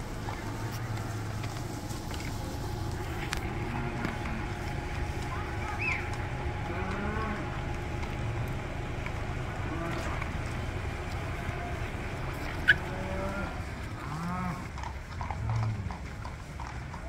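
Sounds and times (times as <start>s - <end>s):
cattle mooing: 3.0s - 7.7s, 9.4s - 16.0s.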